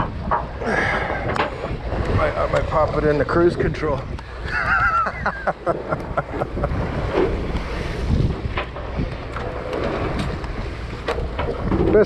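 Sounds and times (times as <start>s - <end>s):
boat engine running: 0.0s - 12.0s
sea water rushing: 0.0s - 12.0s
wind buffeting microphone: 0.0s - 12.0s.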